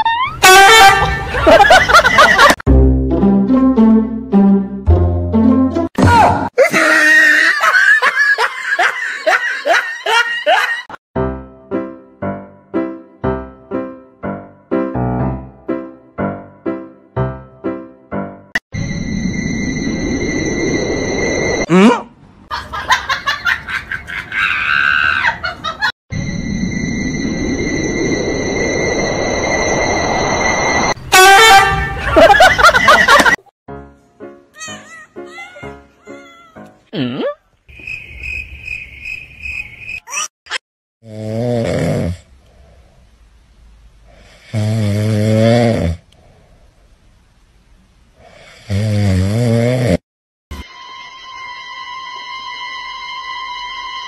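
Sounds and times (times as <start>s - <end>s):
background music: 2.7s - 6.0s, 11.2s - 18.5s, 33.7s - 36.9s
cat snoring loudly: 41.0s - 42.7s, 44.1s - 46.0s, 48.2s - 50.0s.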